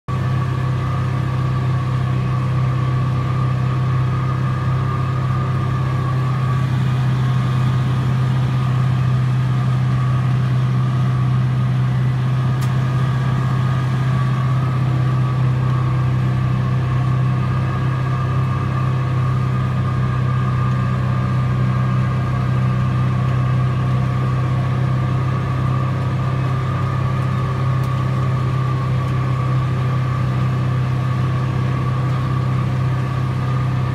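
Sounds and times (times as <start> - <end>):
mower whine: 0.1 - 33.9
tractor engine drone: 0.1 - 33.9.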